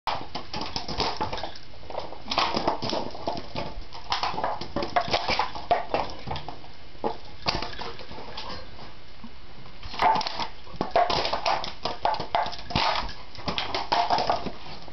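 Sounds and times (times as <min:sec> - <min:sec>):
dog claws clicking and tapping: 0:10.0 - 0:14.5.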